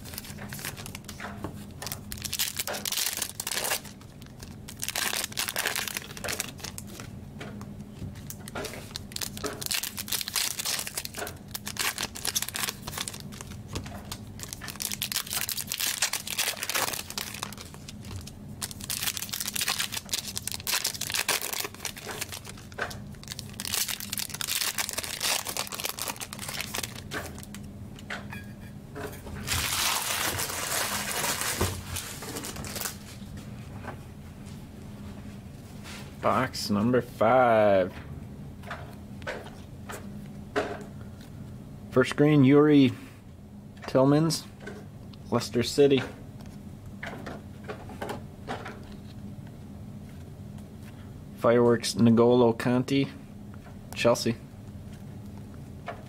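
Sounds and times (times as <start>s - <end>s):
wrappers tearing and crinkling: 0.0s - 1.2s, 1.8s - 7.0s, 8.2s - 27.6s, 29.4s - 33.1s.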